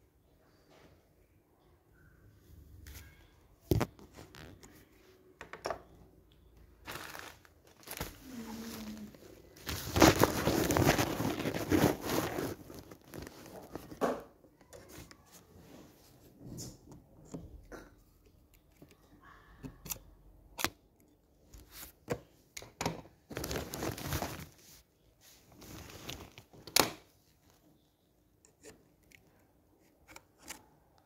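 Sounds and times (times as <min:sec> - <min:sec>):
plastic dish crinkling and crackling: 0:06.9 - 0:14.2.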